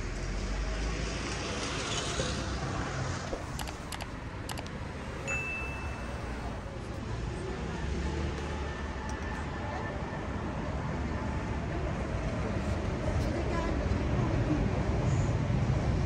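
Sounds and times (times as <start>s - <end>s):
street traffic: 0.0s - 16.0s
short high tone: 5.2s - 6.7s.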